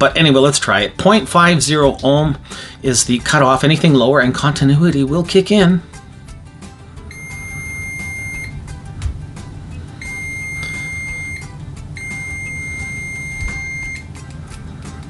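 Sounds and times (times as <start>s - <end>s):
multimeter high-pitched beep: 7.1s - 8.6s, 10.0s - 14.1s.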